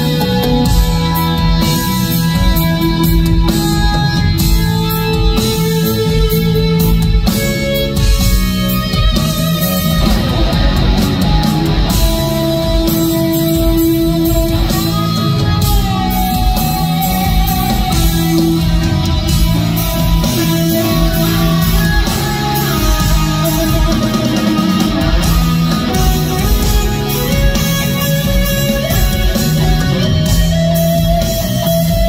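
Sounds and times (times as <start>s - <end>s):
electric guitar lead notes: 0.0s - 32.0s
live instrumental rock band: 0.0s - 32.0s.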